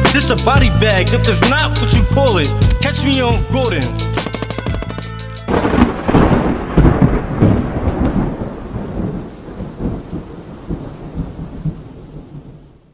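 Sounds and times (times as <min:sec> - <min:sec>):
thunder rumbling: 0:04.5 - 0:12.9
steady rain: 0:05.5 - 0:12.9.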